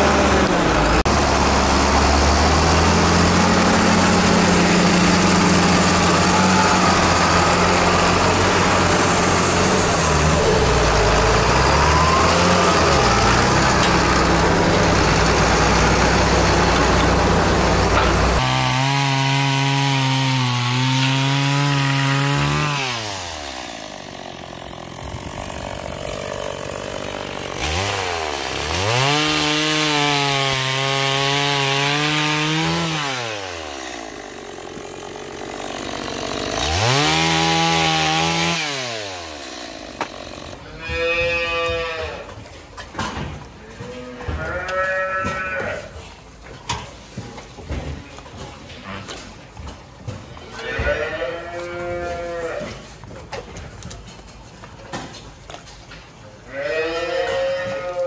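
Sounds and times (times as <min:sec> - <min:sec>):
tractor engine running: 0:00.0 - 0:41.8
chainsaw revving and cutting wood: 0:00.0 - 0:42.4, 0:48.7 - 0:53.9.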